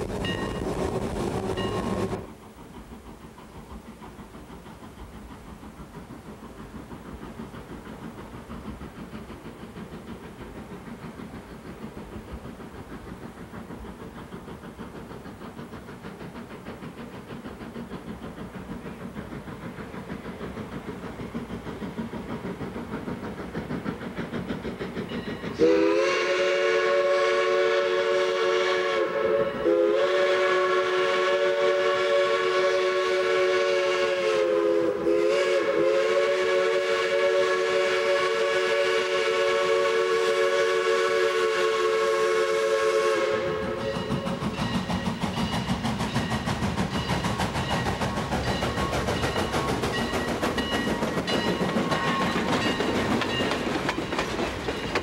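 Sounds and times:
steam locomotive running: 0.0s - 55.0s
locomotive chime whistle: 0.2s - 0.8s, 1.5s - 2.2s, 25.1s - 44.9s.

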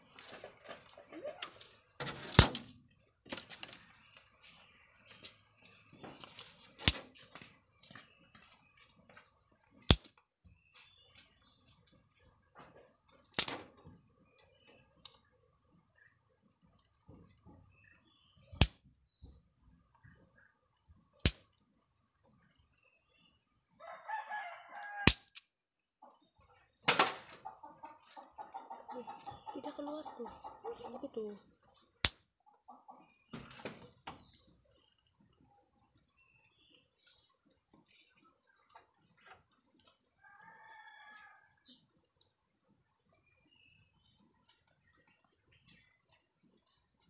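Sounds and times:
rooster crowing: 23.8s - 25.2s, 40.2s - 41.6s.

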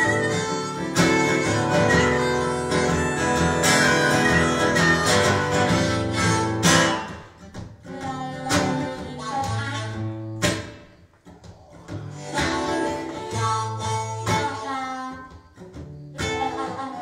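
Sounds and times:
harmonica notes: 0.0s - 7.5s, 12.0s - 17.0s
acoustic guitar strummed chords: 0.0s - 17.0s.

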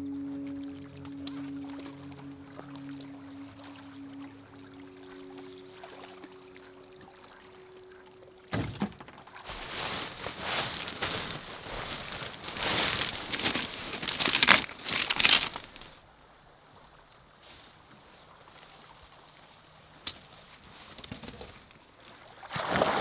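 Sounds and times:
nylon tent fabric rustling: 9.4s - 16.0s.

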